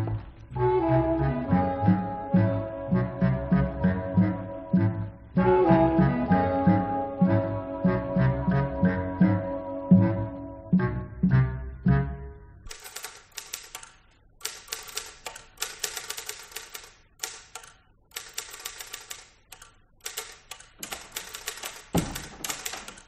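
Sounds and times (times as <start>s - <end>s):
brass music: 0.0s - 12.6s
typewriter clattering: 12.7s - 23.0s.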